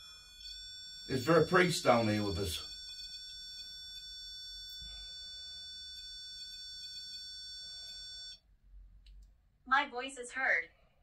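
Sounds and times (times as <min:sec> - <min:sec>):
high electronic alarm tone: 0:00.0 - 0:08.4.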